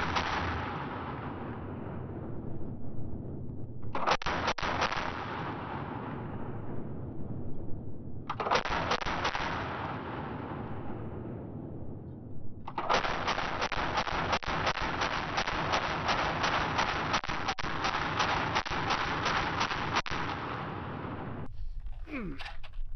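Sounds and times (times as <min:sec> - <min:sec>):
gunshot echo: 0:00.0 - 0:01.7, 0:03.9 - 0:06.7, 0:08.3 - 0:11.3, 0:12.7 - 0:21.5
machine gun bursts: 0:12.7 - 0:20.4.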